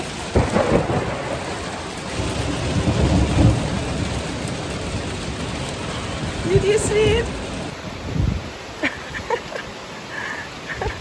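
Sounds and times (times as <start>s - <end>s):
low rumble of thunder: 0.0s - 8.5s
heavy rain pouring: 0.0s - 11.0s.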